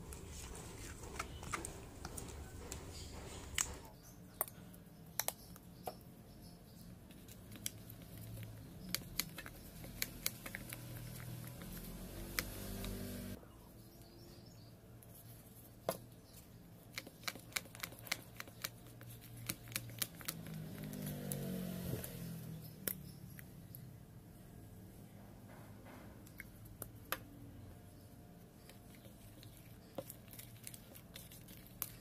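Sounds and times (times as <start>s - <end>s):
sticky slime squelching: 7.0s - 13.4s, 16.4s - 23.4s, 28.6s - 32.0s.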